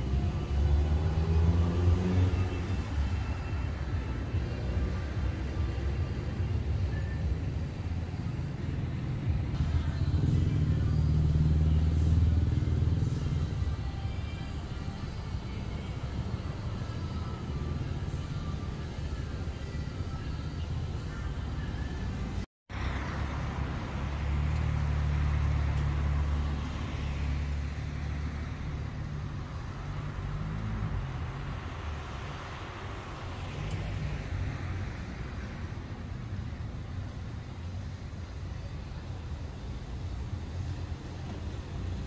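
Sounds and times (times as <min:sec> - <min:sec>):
car passing: 0:00.0 - 0:06.1
steady traffic hum: 0:00.0 - 0:42.0.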